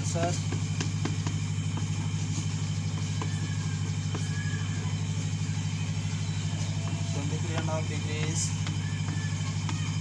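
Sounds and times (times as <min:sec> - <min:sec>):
low pulsing machine hum: 0:00.0 - 0:10.0
chalk tapping on chalkboard: 0:00.4 - 0:04.5.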